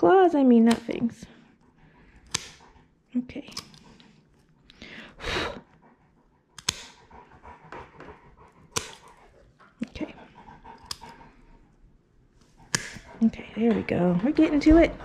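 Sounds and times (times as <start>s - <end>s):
dog panting: 0.0s - 15.0s
nail clippers clicking: 0.7s - 1.0s, 2.2s - 2.7s, 3.4s - 4.0s, 6.6s - 7.0s, 8.7s - 9.1s, 10.8s - 11.2s, 12.7s - 13.1s.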